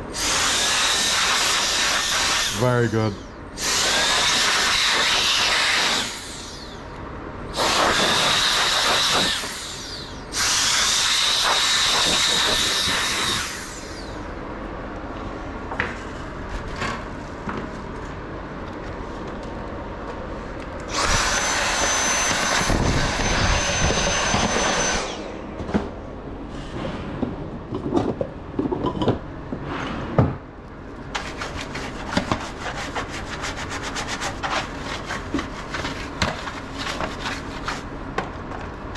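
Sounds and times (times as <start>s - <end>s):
electric air duster blowing: 0.1s - 3.0s, 3.6s - 6.8s, 7.5s - 14.2s, 20.9s - 25.6s.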